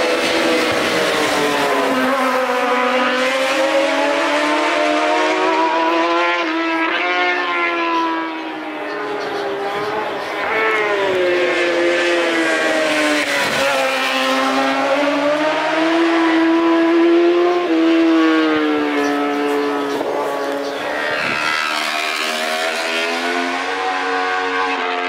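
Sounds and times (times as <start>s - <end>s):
racing motorcycle engines revving: 0.0s - 25.0s.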